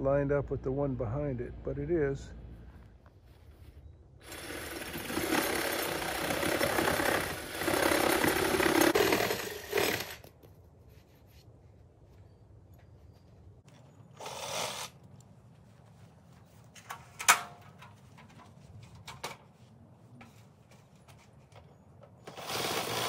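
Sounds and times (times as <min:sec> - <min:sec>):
power tool on wood: 0:04.2 - 0:10.2, 0:22.2 - 0:23.0.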